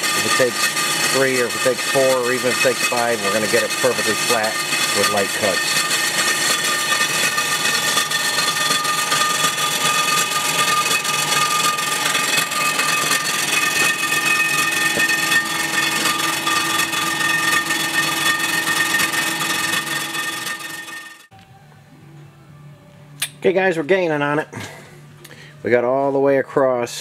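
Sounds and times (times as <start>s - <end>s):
machine cutter milling metal: 0.0s - 21.3s
high whining tones: 0.0s - 23.2s.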